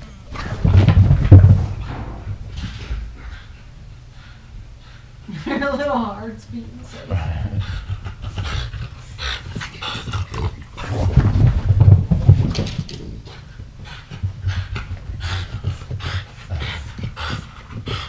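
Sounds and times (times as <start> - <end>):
puppies panting: 1.9 - 6.0, 6.8 - 10.8, 13.2 - 18.0
puppies growling: 7.0 - 12.4.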